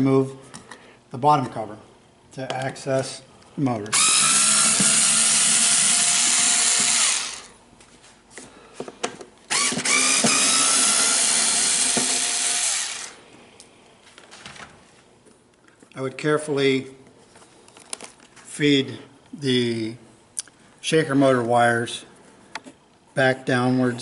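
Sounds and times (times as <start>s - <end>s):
power screwdriver running: 3.9s - 7.5s, 9.5s - 13.2s.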